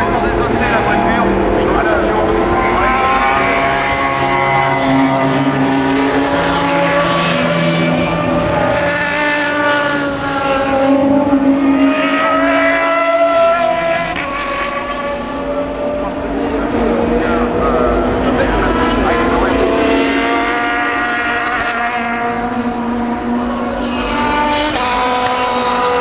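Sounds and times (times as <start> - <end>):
race cars passing at speed: 0.0 - 26.0.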